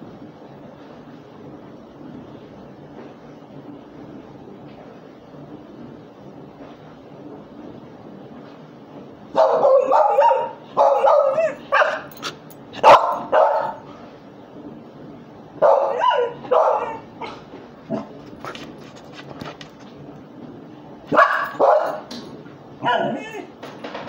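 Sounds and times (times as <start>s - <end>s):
dog barking: 9.4s - 13.8s, 15.6s - 18.1s, 21.1s - 22.1s, 22.8s - 23.4s.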